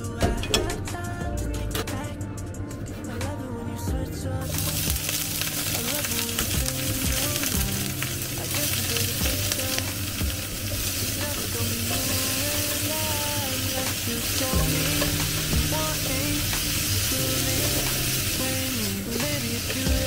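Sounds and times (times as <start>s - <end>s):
vegetables sizzling in oil: 4.4s - 20.0s.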